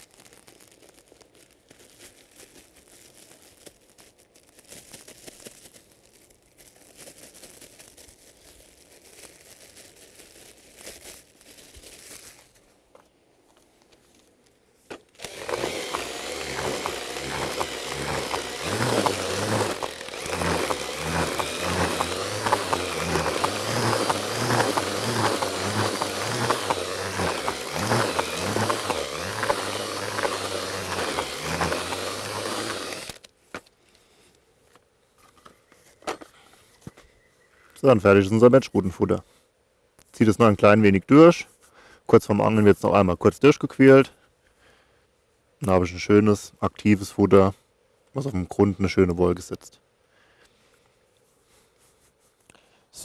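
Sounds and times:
groundbait crumbling and rustling: 0.0s - 33.7s
rhythmic scraping and rumbling: 15.2s - 33.2s.

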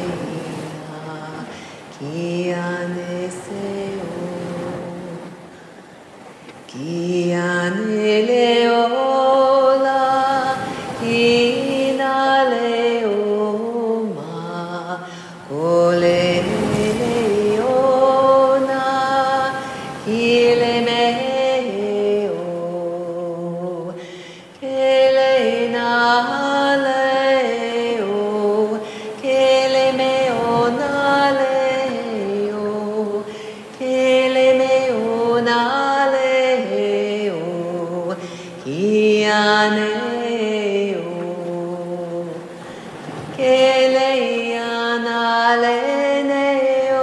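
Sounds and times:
woman singing without words: 0.0s - 47.0s.

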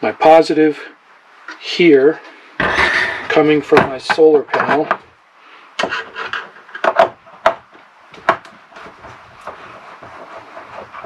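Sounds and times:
wire scraping: 2.6s - 4.8s, 5.8s - 7.6s.

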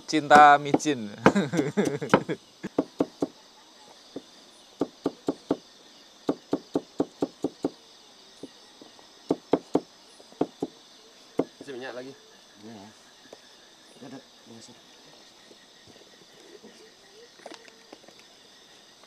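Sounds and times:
crickets chirping: 0.0s - 19.0s.

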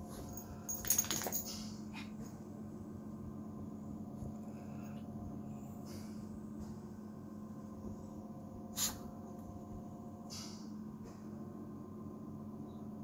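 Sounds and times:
steady low hum: 0.0s - 13.0s
puppy blowing through nose: 8.7s - 9.1s.

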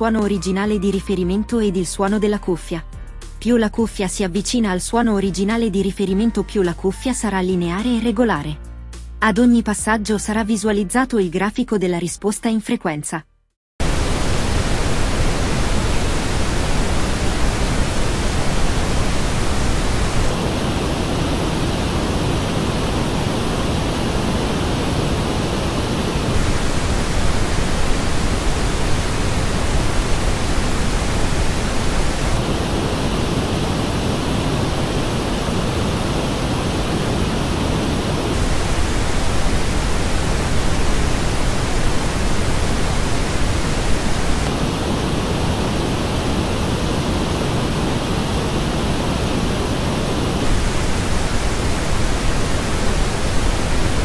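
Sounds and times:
pink noise test signal: 13.8s - 54.0s.

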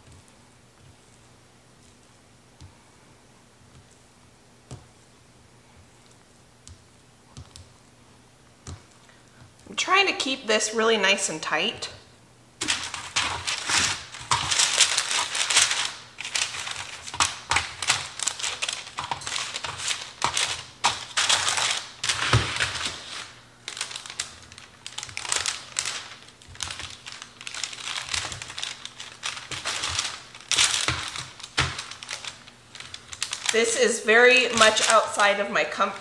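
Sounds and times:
parchment paper crinkling: 12.6s - 36.0s.

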